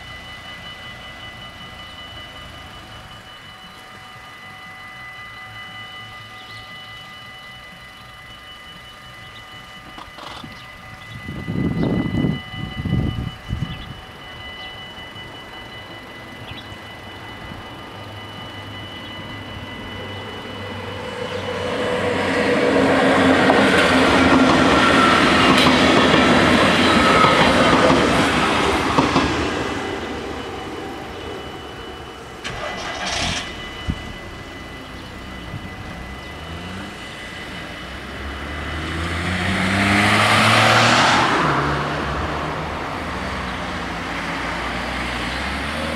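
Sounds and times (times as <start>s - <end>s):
crossing warning bells: 0.0s - 45.9s
electric train passing: 0.0s - 45.9s
car pulling away: 32.4s - 45.9s.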